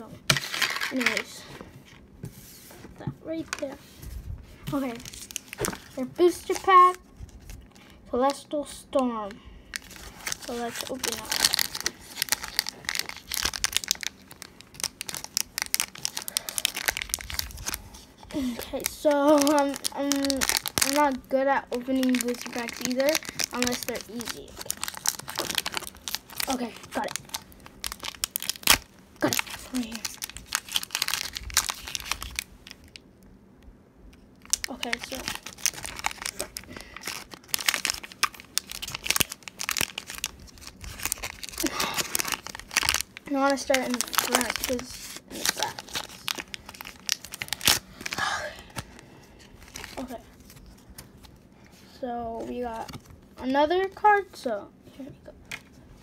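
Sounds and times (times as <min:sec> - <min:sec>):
foil wrapper crinkling: 0:00.3 - 0:01.4, 0:04.6 - 0:07.9, 0:09.7 - 0:33.0, 0:34.4 - 0:51.4.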